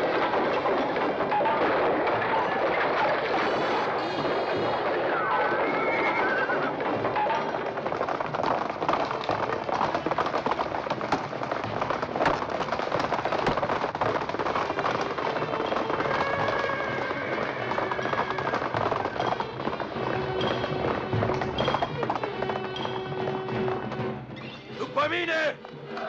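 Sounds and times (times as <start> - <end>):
clatter of knocks and crashes: 0.0 - 24.3
horses galloping: 0.0 - 26.0
horses neighing: 0.9 - 25.0.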